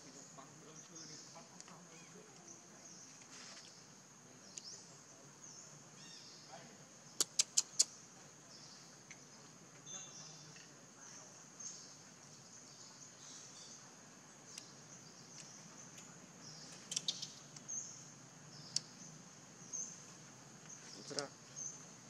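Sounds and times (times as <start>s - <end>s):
sharp clicks: 7.2s - 7.9s, 16.7s - 17.7s, 18.6s - 18.9s.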